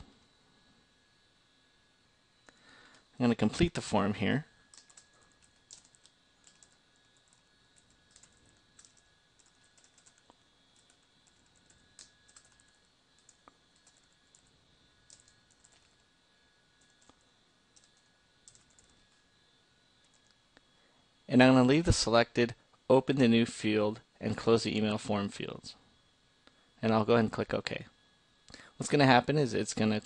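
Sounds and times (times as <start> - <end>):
faint keyboard typing: 4.7 - 16.1, 16.8 - 19.2, 20.0 - 20.4.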